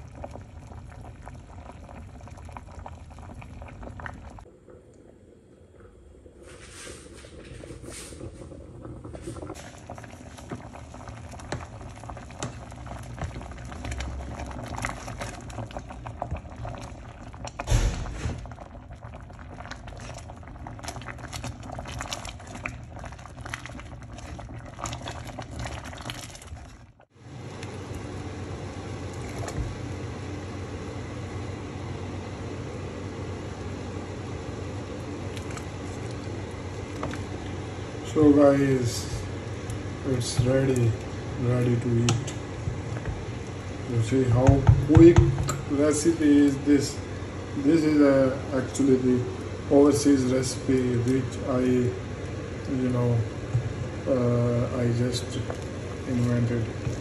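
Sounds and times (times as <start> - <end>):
pot boiling and bubbling: 0.0 - 57.0
wooden spoon stirring: 9.2 - 17.1, 19.7 - 27.0, 35.3 - 37.8, 38.8 - 46.6, 54.8 - 57.0.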